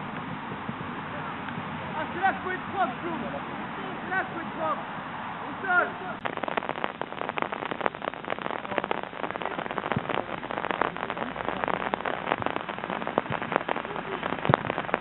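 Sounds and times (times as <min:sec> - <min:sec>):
dense crackle of ticks and pops: 0:05.7 - 0:15.0.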